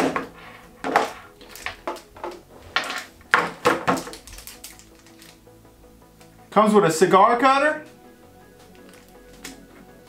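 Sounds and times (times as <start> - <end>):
case clicks and knocks: 0.0 - 4.8.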